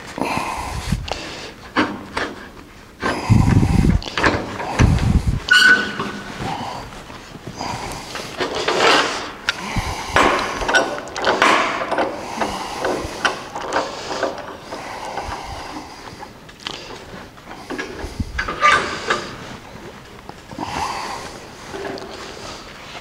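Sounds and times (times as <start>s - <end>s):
metal clicks and knocks: 8.4s - 15.4s.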